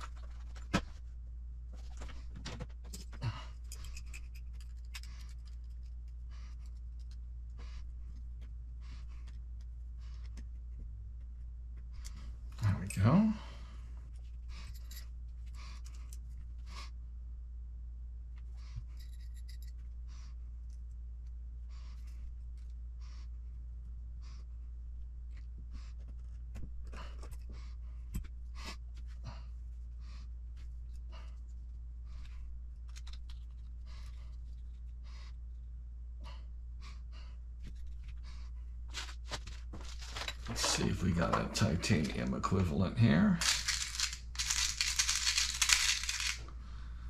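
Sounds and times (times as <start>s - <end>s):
steady low hum: 0.0s - 47.0s
small parts clicking and tapping: 2.9s - 7.2s, 43.4s - 46.6s.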